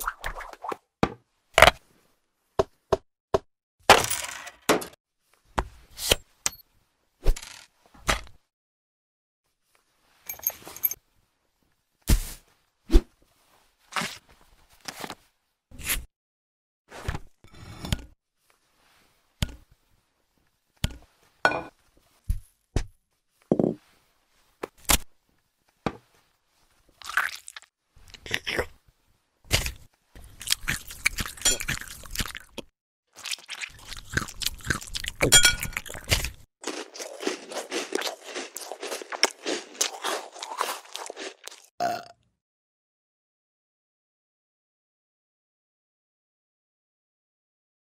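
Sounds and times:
crunching: 0:33.2 - 0:41.7.

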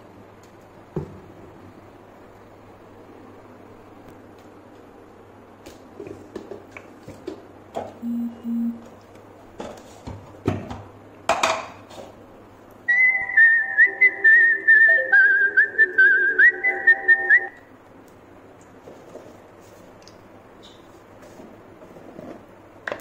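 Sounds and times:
whistled tune: 0:12.9 - 0:17.6.

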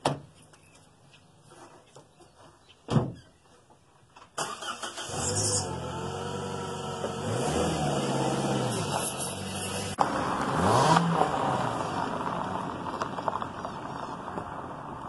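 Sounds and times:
car driving away: 0:04.4 - 0:15.0.

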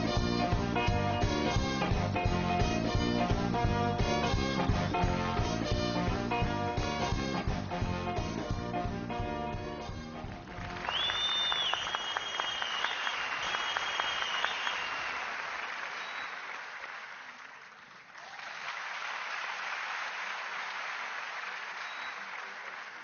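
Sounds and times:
audience applauding: 0:10.1 - 0:23.0
shrill held whistle: 0:10.9 - 0:15.2.

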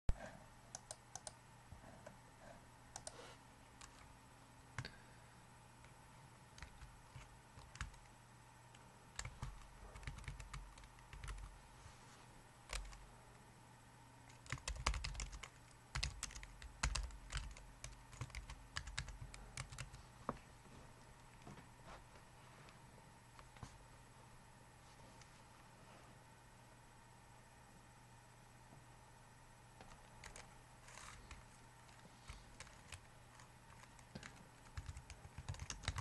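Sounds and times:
keyboard typing: 0:00.7 - 0:01.4, 0:02.9 - 0:03.2, 0:03.8 - 0:04.1, 0:06.6 - 0:08.1, 0:09.2 - 0:11.5, 0:12.7 - 0:13.0, 0:14.3 - 0:20.0, 0:29.8 - 0:36.0.

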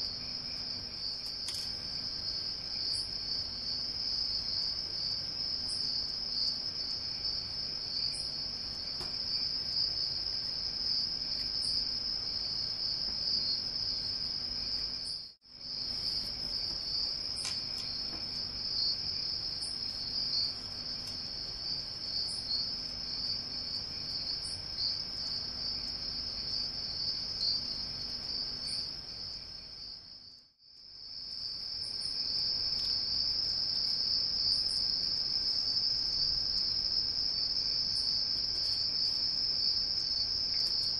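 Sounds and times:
high-pitched insect trill: 0:00.0 - 0:30.4, 0:31.0 - 0:40.9.

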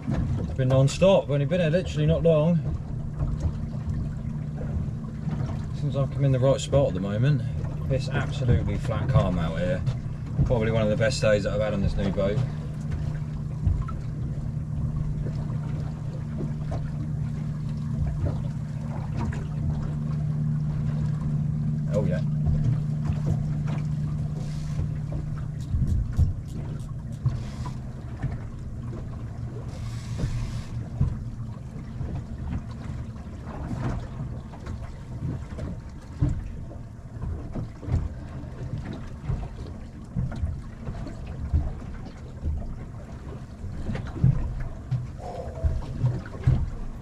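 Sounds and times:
knocks and thumps on boat: 0:00.0 - 0:47.0
low steady hum: 0:00.0 - 0:47.0.

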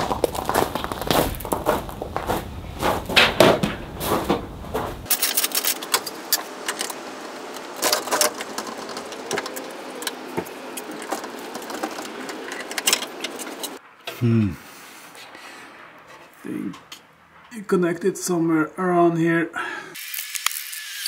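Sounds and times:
footsteps on gravel: 0:00.0 - 0:05.1.

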